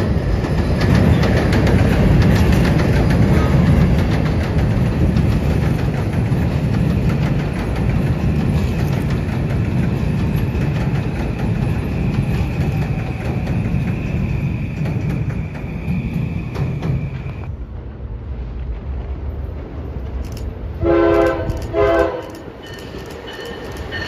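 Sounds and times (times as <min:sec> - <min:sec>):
train wheels rumbling on rails: 0:00.0 - 0:24.0
clicking over rail joints: 0:00.2 - 0:15.7, 0:21.3 - 0:24.0.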